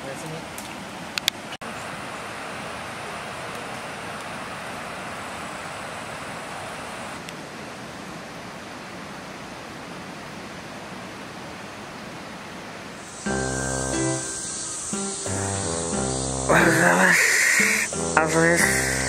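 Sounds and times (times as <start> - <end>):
steady rushing noise: 13.0 - 19.0.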